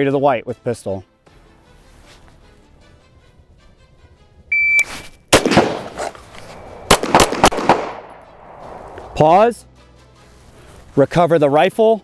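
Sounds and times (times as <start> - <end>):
shot timer beep: 4.5 - 4.9
pistol shots with ringing echo: 5.3 - 8.6
rifle shot: 5.3 - 9.2.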